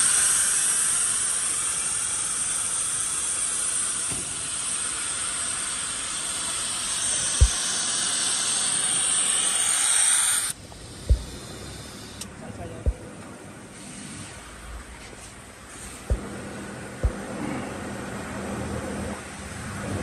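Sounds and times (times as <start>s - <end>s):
compressed air hissing: 0.0s - 12.3s, 13.7s - 14.6s
low knocks: 11.1s - 11.4s.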